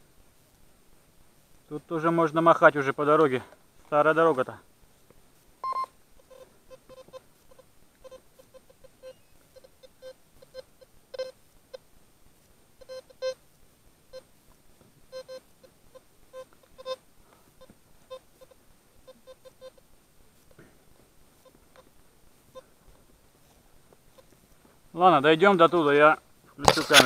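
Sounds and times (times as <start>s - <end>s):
metal detector beeping: 5.6s - 11.8s, 12.8s - 13.4s, 15.1s - 17.0s, 17.6s - 19.8s, 22.5s - 22.7s.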